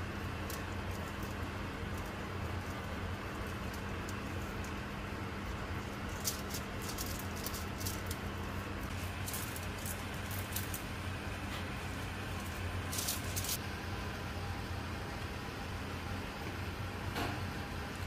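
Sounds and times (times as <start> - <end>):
pastry brush crinkling foil: 0.0 - 13.6
steady low hum: 0.0 - 18.0.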